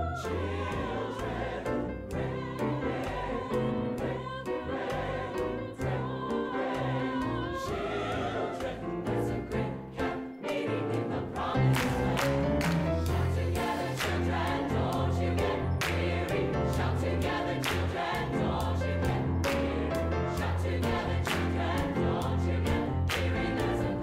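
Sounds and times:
gospel choir singing: 0.0 - 24.0
hand claps: 11.7 - 13.2, 14.0 - 14.4, 15.8 - 16.2, 17.6 - 18.2, 19.4 - 19.8, 21.3 - 21.8, 23.1 - 23.3.

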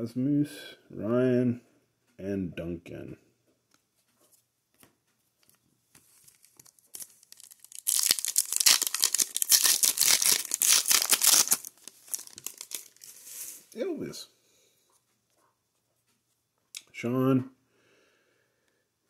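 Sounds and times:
soft rustle: 3.9 - 7.6, 11.7 - 13.8
foil wrapper crinkling and tearing: 6.1 - 13.6.

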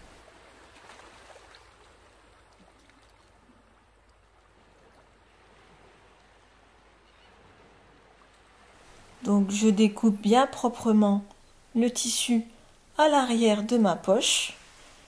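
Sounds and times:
faint steady hiss: 3.4 - 15.0.

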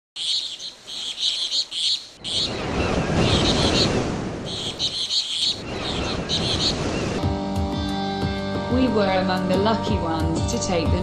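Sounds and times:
birds chirping: 0.2 - 8.4.

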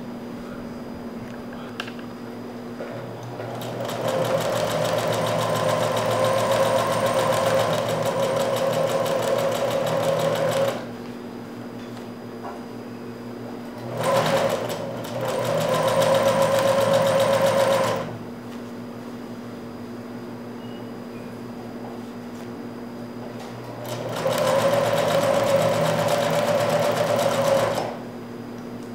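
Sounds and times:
sewing machine stitching: 3.4 - 10.8, 13.8 - 18.1, 23.8 - 28.0.

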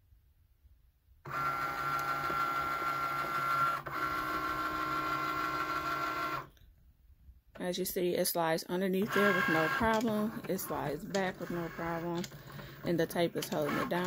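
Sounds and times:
cutting machine motor whine: 9.0 - 12.9.

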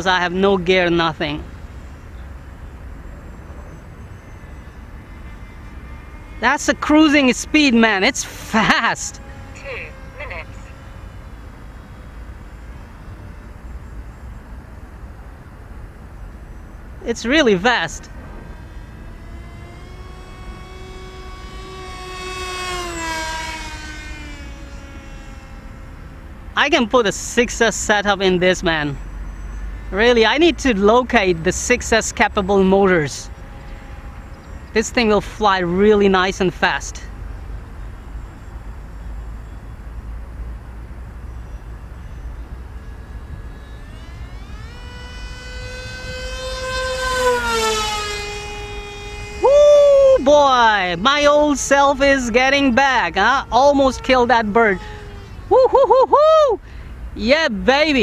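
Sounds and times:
model plane motor whine: 0.3 - 55.8, 56.6 - 58.0
wind rumble on microphone: 40.8 - 50.2.

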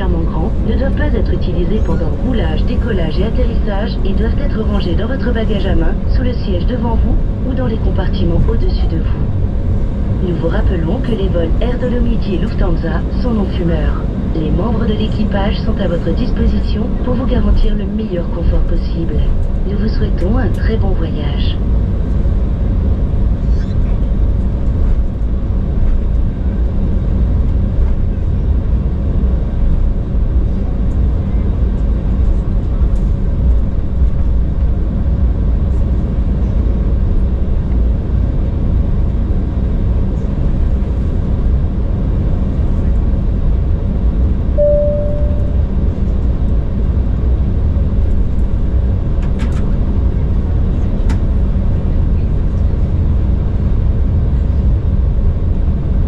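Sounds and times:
airliner cabin rumble: 0.0 - 56.0
single clear tone: 44.6 - 45.8.

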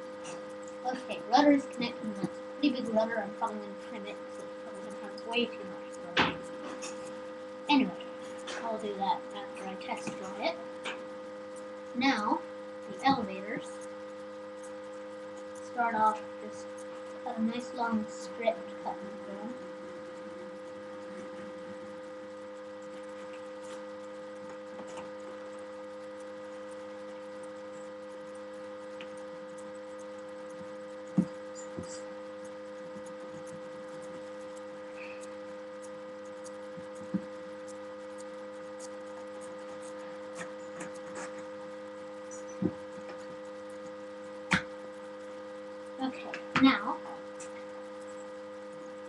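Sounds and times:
electrical mains hum: 0.0 - 49.0.

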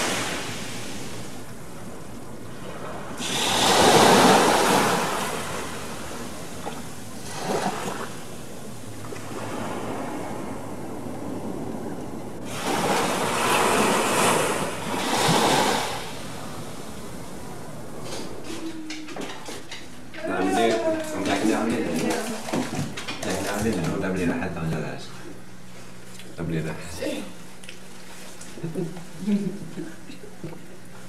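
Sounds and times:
waves washing on sandy beach: 0.0 - 18.5.

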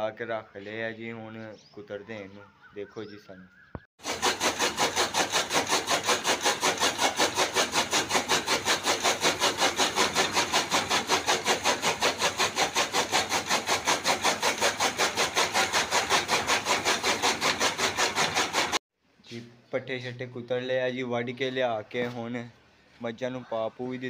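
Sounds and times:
chaff cutter chopping fodder: 4.0 - 18.8.

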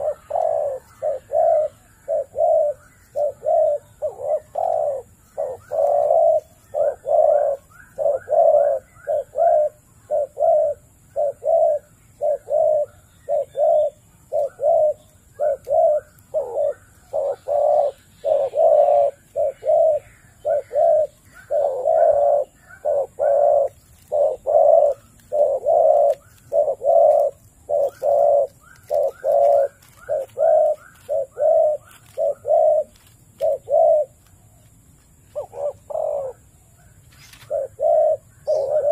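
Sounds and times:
dove cooing: 0.0 - 38.9.

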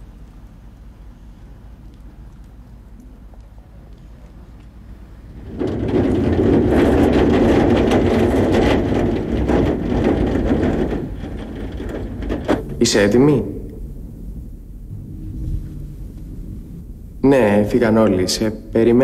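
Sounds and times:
sheet-metal gate rolling on track: 5.2 - 19.0.

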